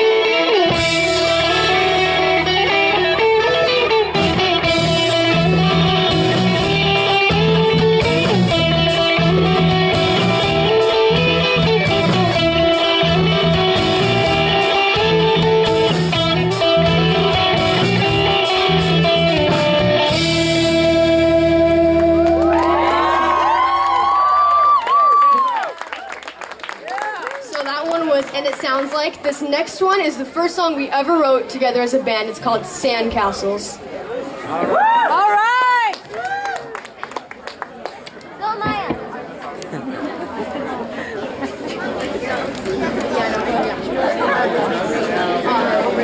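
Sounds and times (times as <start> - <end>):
drums: 0.0 - 24.1
bass guitar: 0.0 - 24.6
electric guitars: 0.0 - 24.8.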